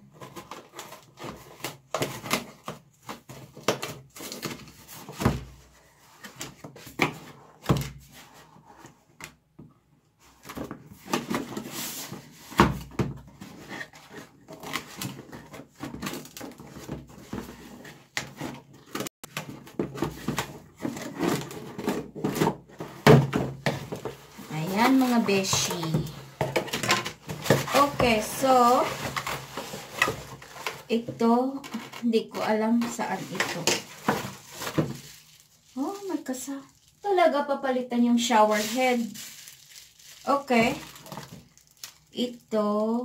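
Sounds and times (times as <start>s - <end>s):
cardboard knocks scrapes and rustles: 10.2s - 32.0s, 32.7s - 35.4s.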